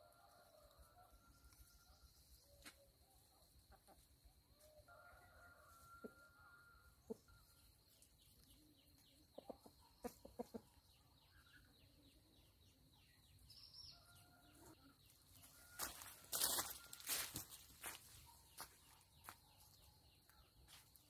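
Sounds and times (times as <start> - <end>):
chickens clucking: 2.6 - 4.6, 6.9 - 13.0.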